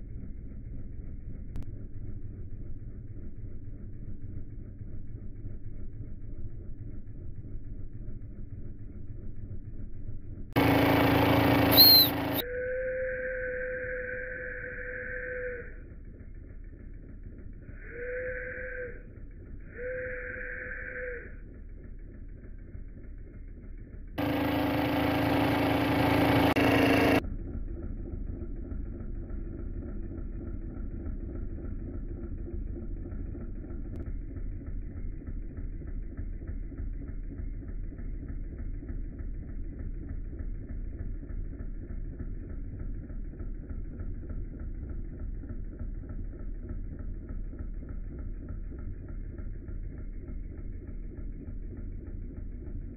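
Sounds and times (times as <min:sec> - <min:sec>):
steam engine running: 0:10.6 - 0:12.6, 0:15.9 - 0:52.9
steam whistle toots: 0:11.6 - 0:15.8, 0:17.7 - 0:19.1, 0:19.7 - 0:21.4.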